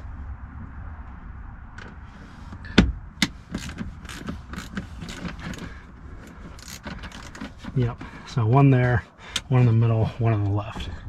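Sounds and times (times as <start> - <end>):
wrench clicking: 3.5 - 5.7, 6.6 - 7.5.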